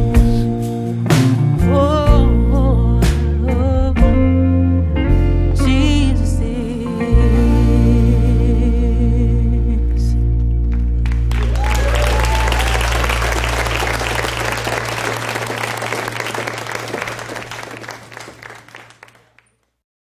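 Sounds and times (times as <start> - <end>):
audience applause: 10.7 - 19.5
cheers: 11.1 - 19.4.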